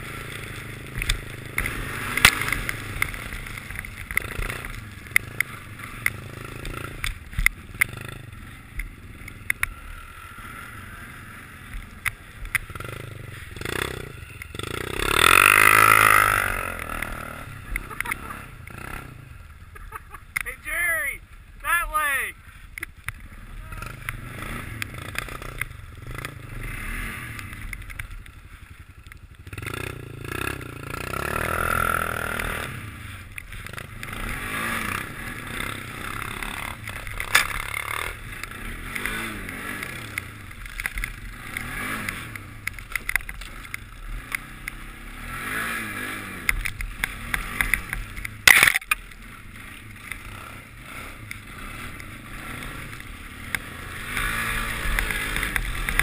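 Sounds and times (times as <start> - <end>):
atv engine revving: 0.0 - 56.0.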